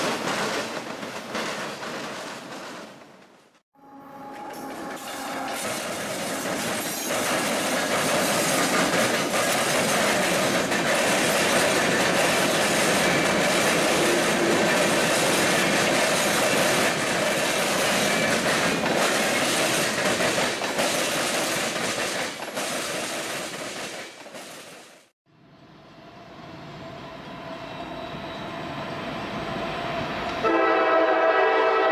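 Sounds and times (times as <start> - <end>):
train wheels rumbling: 4.2 - 25.1
wheels clicking over rail joints: 4.6 - 25.0.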